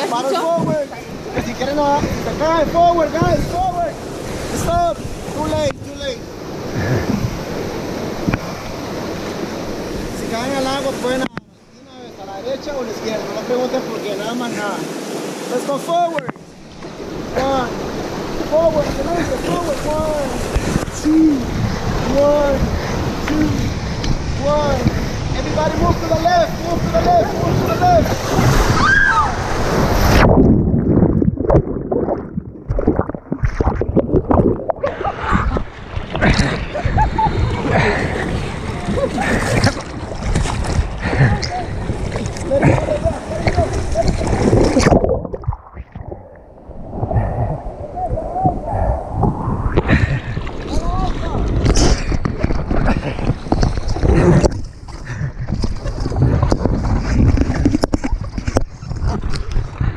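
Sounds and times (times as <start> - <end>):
muffled underwater rush: 0.0 - 59.9
water gurgles and knocks: 0.5 - 3.9, 6.5 - 9.4, 16.1 - 17.2, 18.4 - 28.8, 29.4 - 59.9
buffeting on camera microphone: 47.0 - 59.9.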